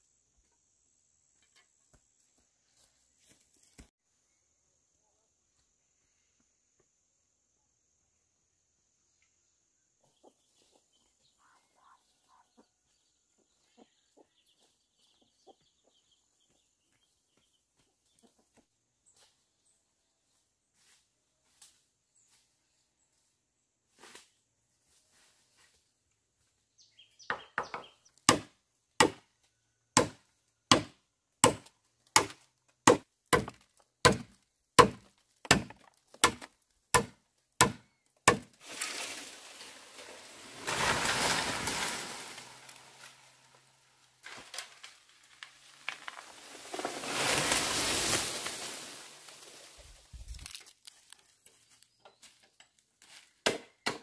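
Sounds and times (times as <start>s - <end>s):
blade chopping bamboo: 28.3s - 29.2s, 30.0s - 38.6s, 53.4s - 54.0s.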